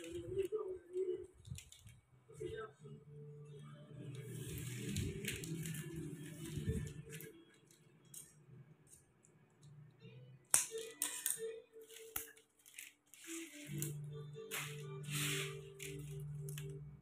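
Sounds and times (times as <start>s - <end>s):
plastic strips rustling and clicking: 0.0s - 2.5s, 4.0s - 9.8s, 10.5s - 16.8s
soft background music: 0.0s - 17.0s.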